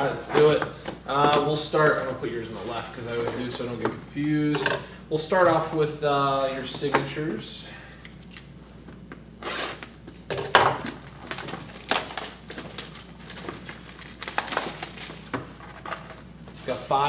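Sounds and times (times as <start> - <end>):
foil wrapper crinkling and tearing: 10.9 - 15.9.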